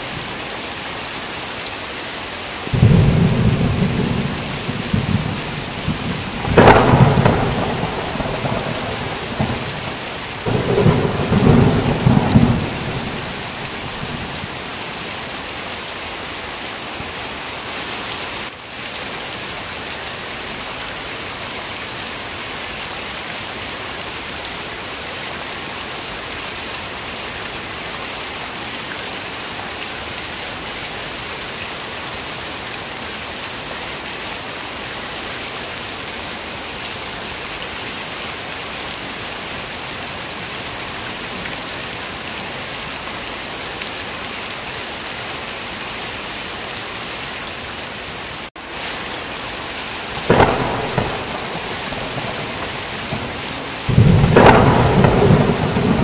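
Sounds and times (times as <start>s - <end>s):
heavy rain hissing: 0.0s - 56.0s
rumbling thunderclap: 2.7s - 14.5s, 50.2s - 56.0s.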